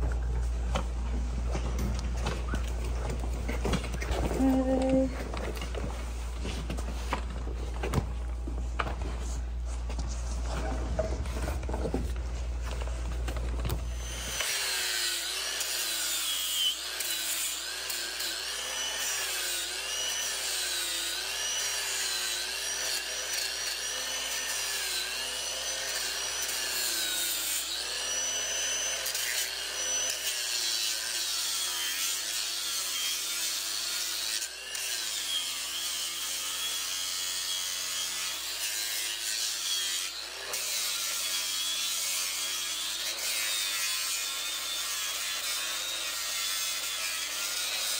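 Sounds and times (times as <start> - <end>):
angle grinder motor whine: 13.7 - 47.9.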